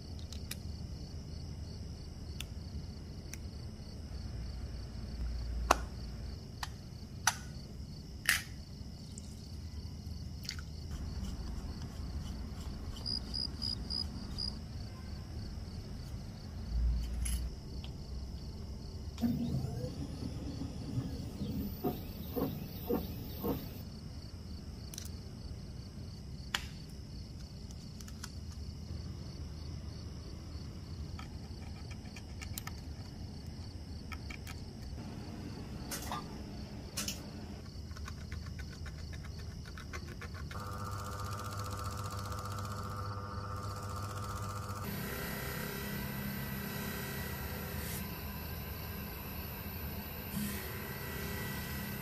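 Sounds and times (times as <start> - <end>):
faint steady high whine: 0.0 - 37.7, 40.6 - 52.0
lathe motor humming: 19.2 - 23.8, 40.6 - 52.0.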